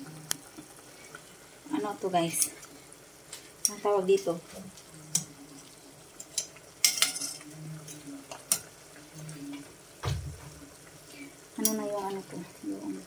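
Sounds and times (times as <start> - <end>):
heavy knock: 10.0 - 10.5.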